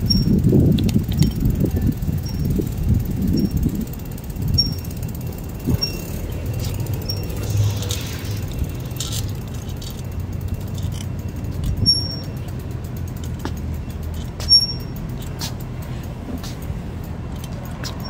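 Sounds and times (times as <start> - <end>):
bicycle rumbling over pavement: 0.0 - 18.0
short high-pitched squeaks: 4.5 - 5.0, 5.6 - 10.1, 10.7 - 12.4, 14.1 - 15.0.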